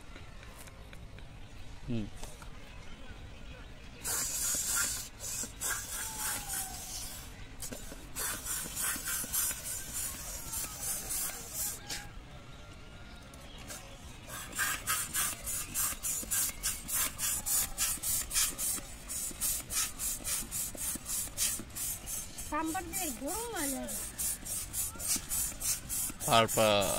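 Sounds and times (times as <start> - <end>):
hand balloon pump hissing: 4.0 - 12.1, 13.7 - 26.9.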